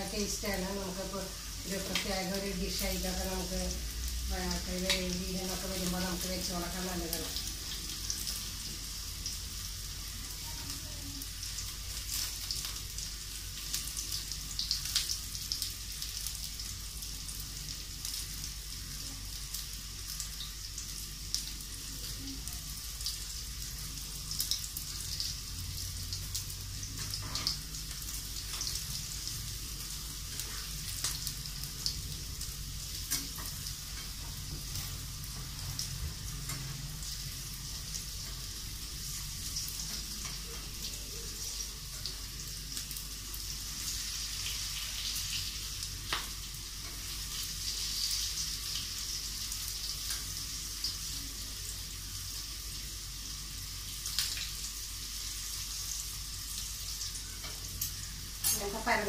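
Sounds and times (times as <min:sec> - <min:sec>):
okra sizzling in oil: 0:00.0 - 0:59.0
oil crackling and popping: 0:03.8 - 0:06.2, 0:10.1 - 0:51.4, 0:53.8 - 0:54.8.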